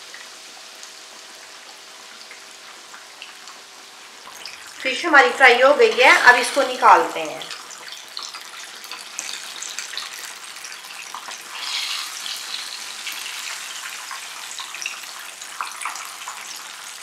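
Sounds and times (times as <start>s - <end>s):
fish deep-frying in oil: 0.0s - 17.0s.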